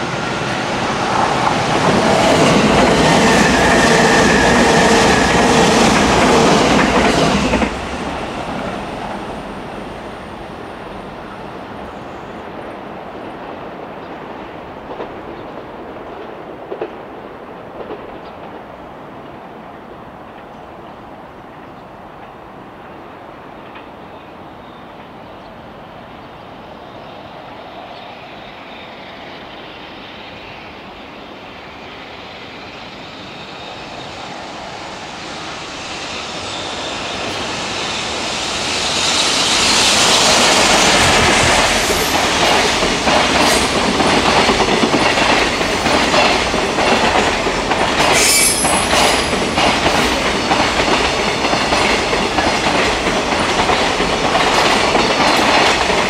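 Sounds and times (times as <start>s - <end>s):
freight train passing: 0.0s - 56.0s
high wheel squeal: 32.1s - 42.7s, 48.1s - 49.9s
wheels clacking over rail joints: 40.7s - 56.0s.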